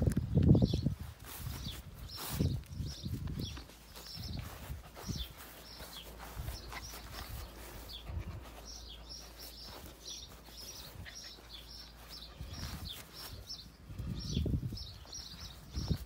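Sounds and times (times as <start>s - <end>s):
small bird chirping: 0.2s - 16.0s.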